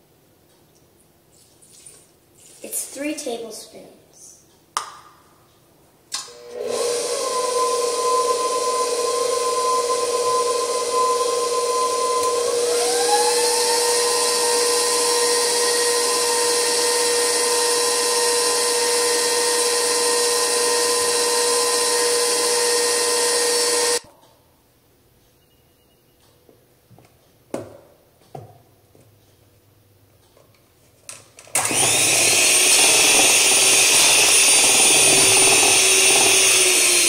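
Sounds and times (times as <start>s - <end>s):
stand mixer motor whine: 6.2s - 24.0s, 31.6s - 37.0s.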